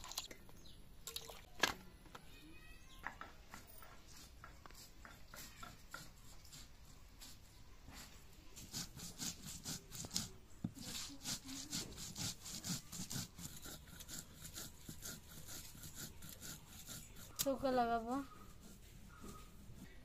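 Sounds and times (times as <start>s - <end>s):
stone muller grinding seeds on slab: 8.6s - 17.7s.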